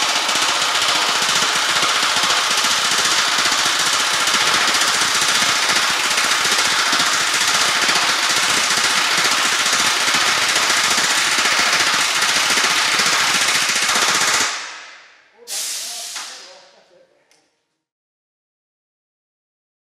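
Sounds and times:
pneumatic rivet gun hammering: 0.0 - 14.8.

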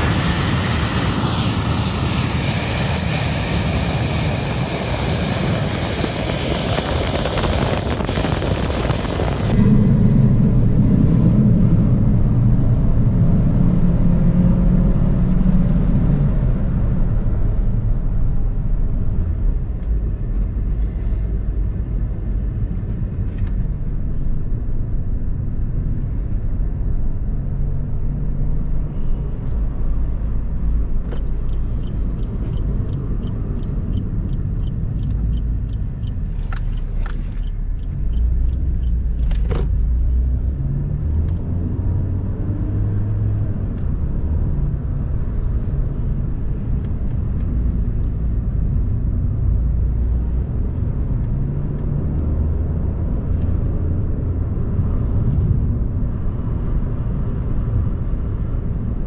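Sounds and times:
car engine and road rumble: 0.0 - 59.0
light ticks: 31.0 - 39.5.

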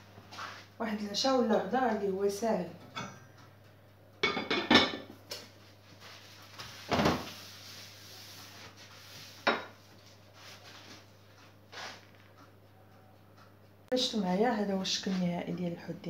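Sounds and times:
ceramic dishes clinking and knocking: 4.2 - 5.1, 9.5 - 9.8.

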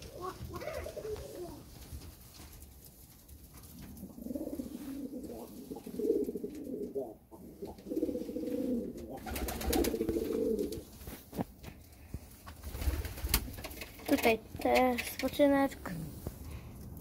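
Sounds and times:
pigeons cooing: 0.0 - 1.8, 3.7 - 10.9.

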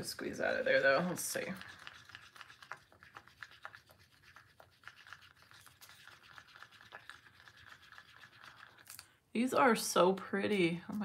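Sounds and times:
stir stick scraping in cup: 0.0 - 9.0.

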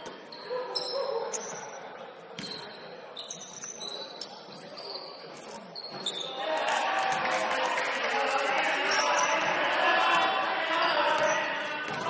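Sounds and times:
players' voices murmuring: 0.0 - 12.0
sneakers squeaking on court: 2.4 - 6.4.

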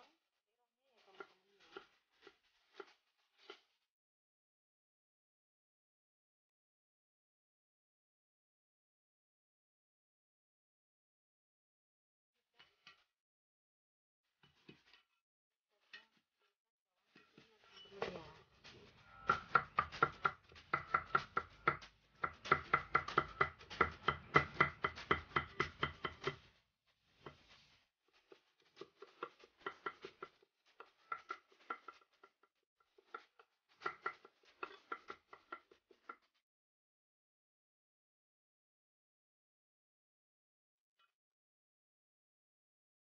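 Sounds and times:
cleaver chopping on wooden block: 19.3 - 26.5, 33.0 - 35.7.

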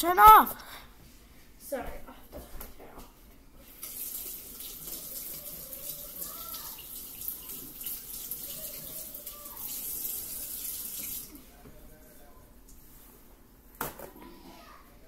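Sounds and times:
tap water running: 3.6 - 11.3.

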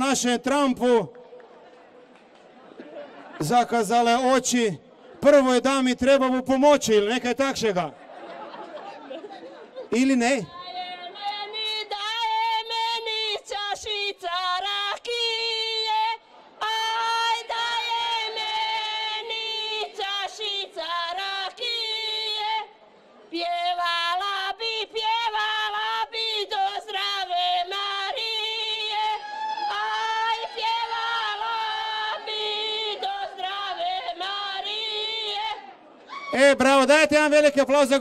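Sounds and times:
women singing folk song: 10.5 - 22.7, 23.3 - 35.8.

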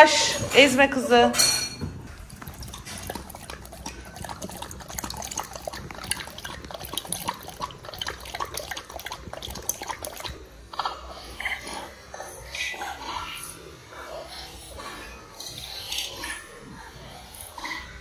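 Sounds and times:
dog lapping and licking: 0.0 - 13.4.

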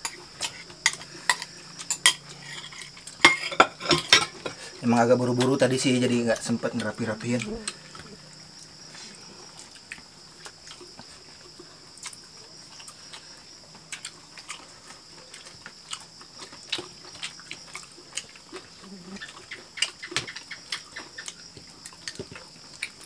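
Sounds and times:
steady high-pitched hum: 0.0 - 23.0
wet chewing and lip-smacking: 6.7 - 23.0.

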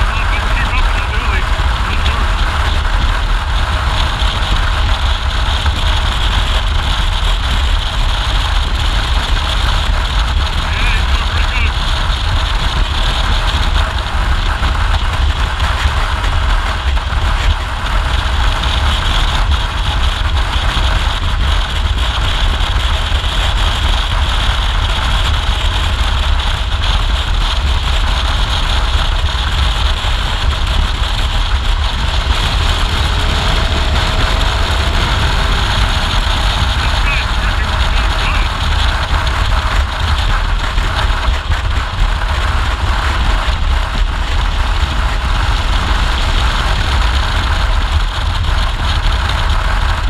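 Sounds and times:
motorcycle engine cruising: 0.0 - 50.0
wind rumble on microphone: 0.0 - 50.0.

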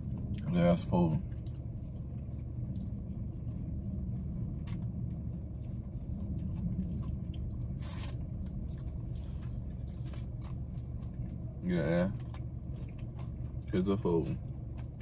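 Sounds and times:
low car hum: 0.0 - 15.0
person chewing and smacking lips: 1.3 - 13.7, 14.4 - 15.0
loud bite: 7.4 - 8.8.

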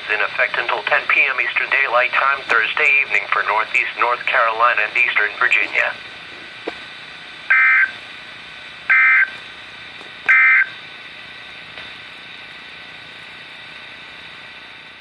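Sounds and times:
radio hiss: 0.0 - 15.0
digital data tone bursts: 7.5 - 7.9, 8.9 - 9.3, 10.3 - 10.7.

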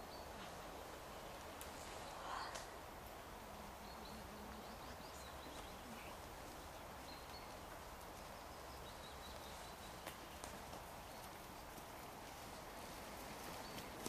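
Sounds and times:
low steady hiss: 0.0 - 14.0
faint bird chirps: 3.8 - 11.4.

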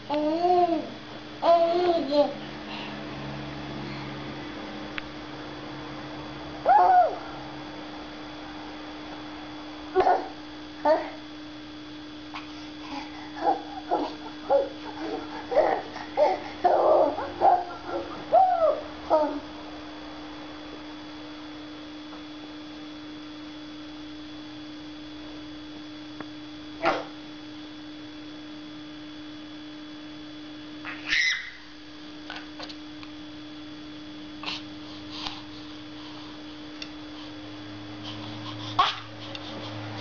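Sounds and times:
steady low hum: 0.0 - 40.0
baby squealing and cooing: 13.4 - 19.4, 30.9 - 31.6.

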